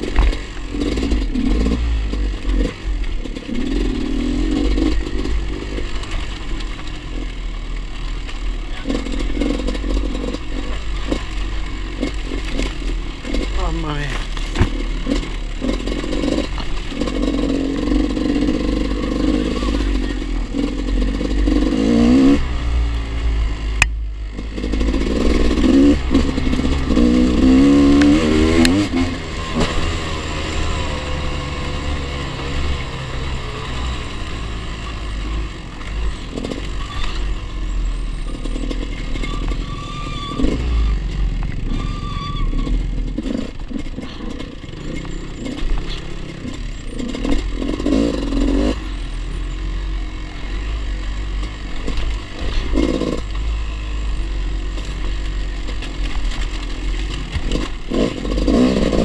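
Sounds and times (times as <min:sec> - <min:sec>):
dirt bike engine revving: 0:00.0 - 0:59.0
stones clattering under tyres: 0:09.0 - 0:19.4, 0:54.6 - 0:59.0.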